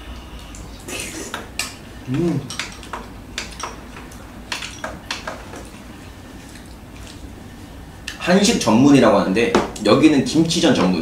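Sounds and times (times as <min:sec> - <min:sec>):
person humming: 0:02.1 - 0:02.5.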